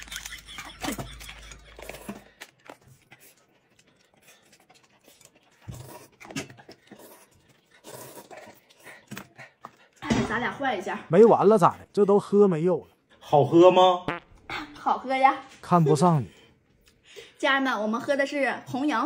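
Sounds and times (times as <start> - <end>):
noodles slurped and chewed: 0.0 - 10.0.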